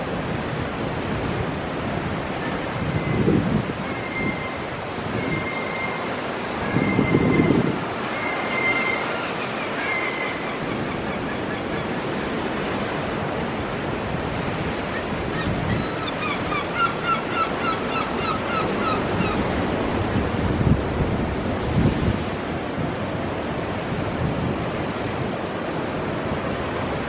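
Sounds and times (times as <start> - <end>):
ocean surf on rocks: 0.0 - 27.0
bird calling: 3.8 - 12.4, 14.9 - 19.6.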